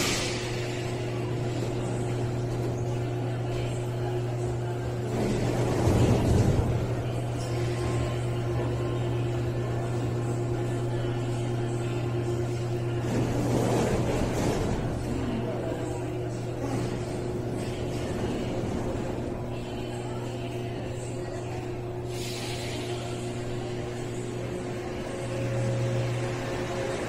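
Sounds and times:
train low hum: 21.3 - 27.0.

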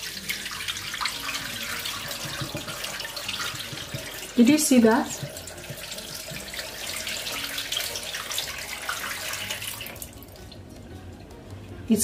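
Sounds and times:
water pouring into sink: 0.0 - 10.4.

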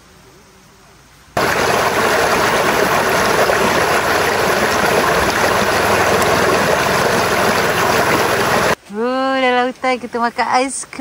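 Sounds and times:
river rushing over rocks: 1.4 - 8.8.

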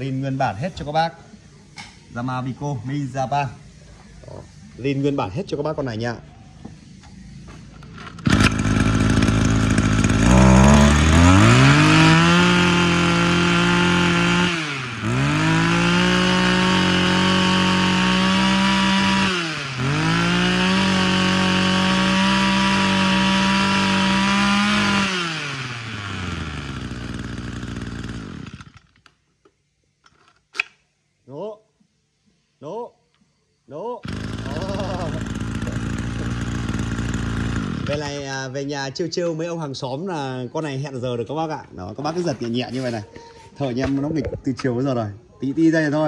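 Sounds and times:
brush cutter engine running: 7.7 - 29.1, 34.0 - 38.3.

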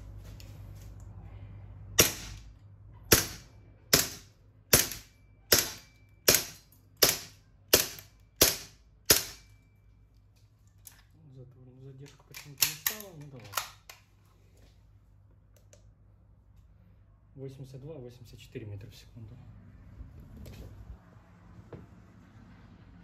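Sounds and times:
airsoft pistol shots: 2.0 - 2.4, 3.1 - 9.5.

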